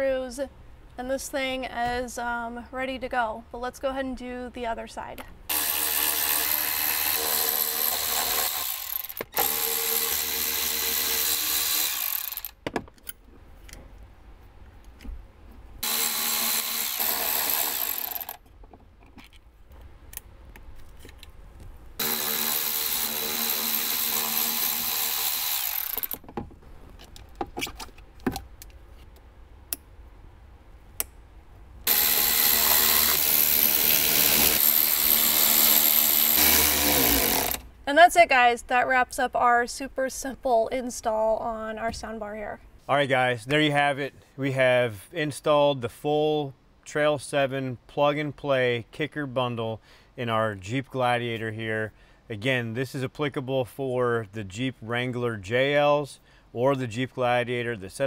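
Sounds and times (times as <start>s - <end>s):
power screwdriver motor whining: 5.5s - 12.6s, 15.8s - 18.4s, 22.0s - 26.2s, 31.9s - 37.6s.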